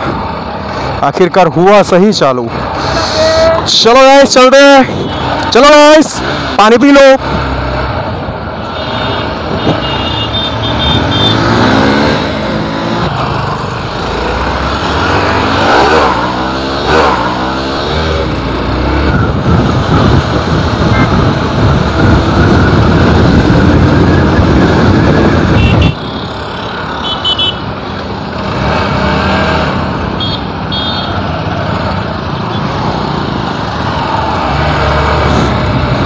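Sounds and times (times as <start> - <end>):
motorcycle engines at speed: 9.1 - 36.0
wind rush on microphone: 18.9 - 26.0.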